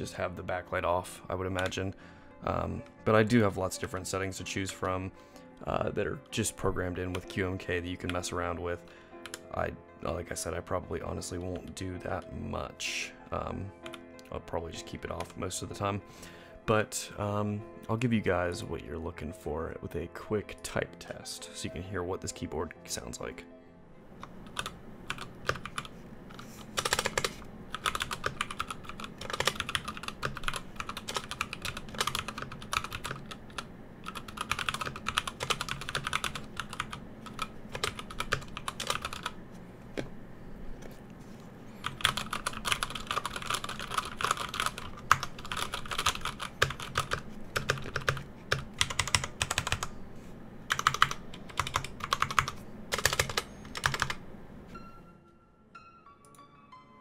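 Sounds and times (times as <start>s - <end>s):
mechanical keyboard typing: 24.2s - 39.4s, 41.8s - 49.9s, 50.7s - 54.2s.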